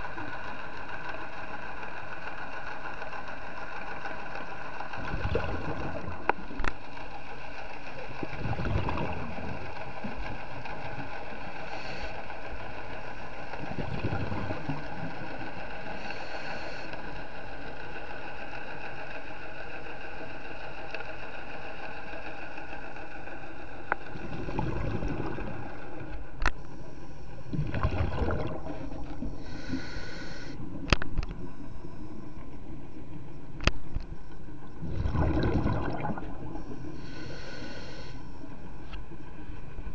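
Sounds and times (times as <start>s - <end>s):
steady mechanical hum: 0.0s - 39.9s
underwater exhaled bubbles: 4.8s - 16.9s, 23.9s - 32.4s, 33.9s - 38.8s
regulator hissing: 29.2s - 30.6s, 36.6s - 38.4s.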